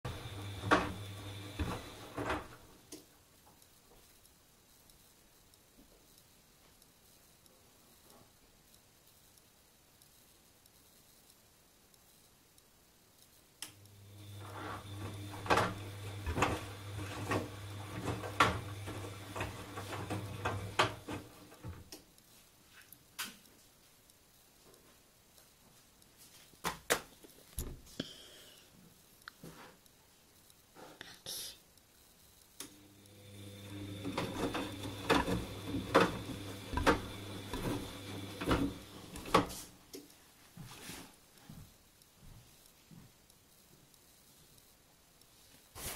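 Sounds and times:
drum motor humming: 0:00.0 - 0:02.4, 0:13.9 - 0:21.1, 0:32.9 - 0:39.4
washing machine click: 0:33.6 - 0:39.6.

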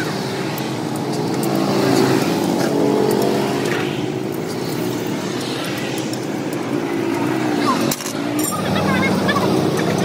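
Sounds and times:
vehicle engine running: 0:00.0 - 0:10.0.

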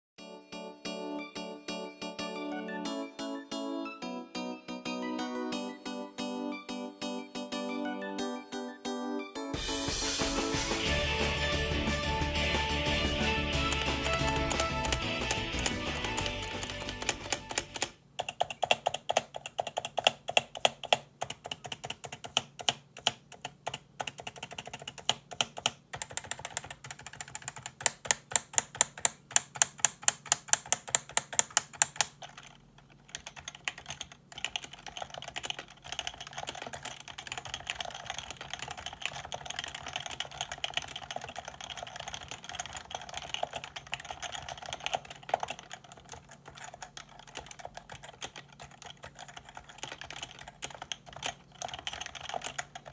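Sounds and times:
typing on keyboard keys: 0:13.6 - 0:52.9.

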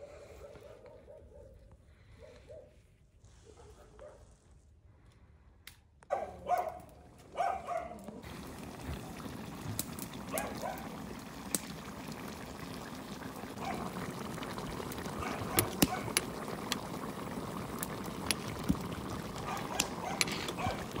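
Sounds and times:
steady hiss of liquid: 0:08.2 - 0:21.0.

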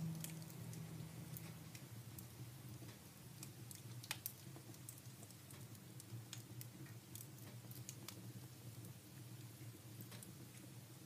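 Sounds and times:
low steady hum: 0:00.0 - 0:07.8
wood fire crackling: 0:00.0 - 0:11.0.

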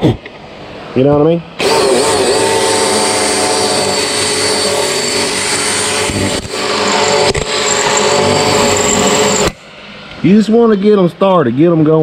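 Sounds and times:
electric drill boring into metal: 0:01.6 - 0:09.6.

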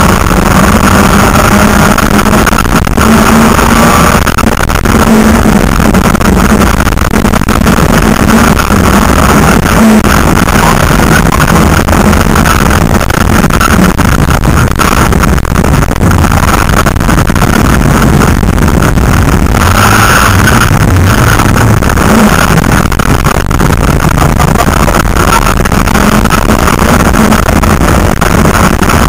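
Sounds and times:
rally car engine under full load: 0:00.0 - 0:29.0.

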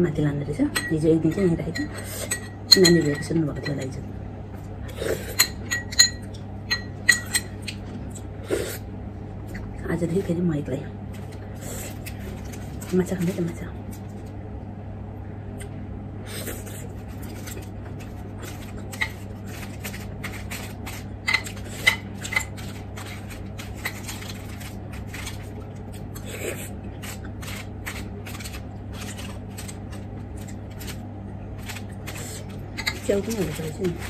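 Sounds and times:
metal spoon scraping foil packet: 0:11.2 - 0:13.6, 0:16.6 - 0:34.0
foil crinkling: 0:11.2 - 0:14.2, 0:17.0 - 0:26.3, 0:27.0 - 0:34.0.

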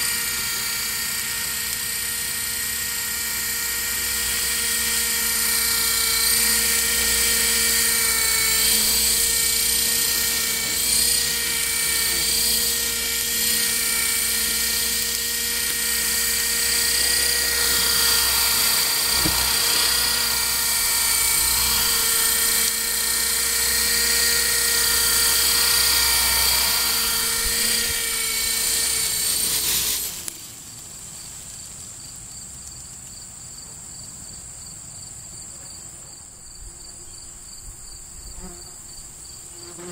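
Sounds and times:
model helicopter motor whining: 0:00.0 - 0:31.9, 0:38.8 - 0:39.9
faint insect chirring: 0:25.4 - 0:39.9.

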